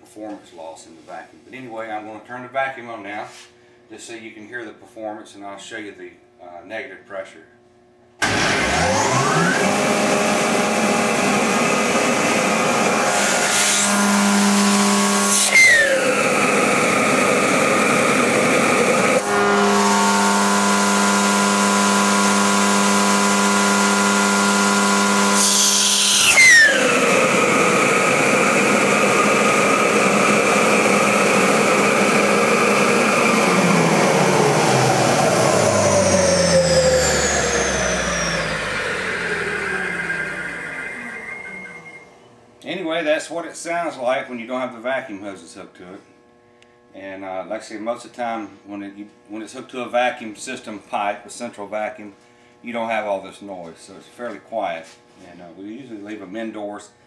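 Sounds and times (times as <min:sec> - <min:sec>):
blower vacuum running: 0:08.2 - 0:50.8
low hum: 0:31.6 - 0:42.6.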